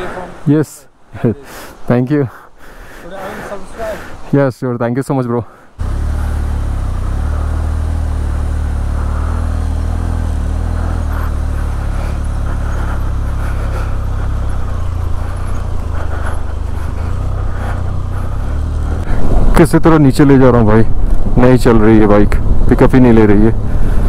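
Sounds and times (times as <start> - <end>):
motorcycle engine running: 5.8 - 19.6.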